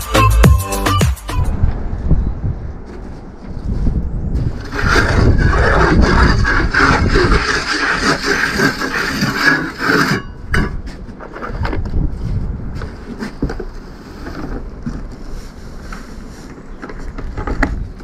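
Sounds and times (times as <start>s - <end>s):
hand tool scraping masonry: 4.4s - 18.0s.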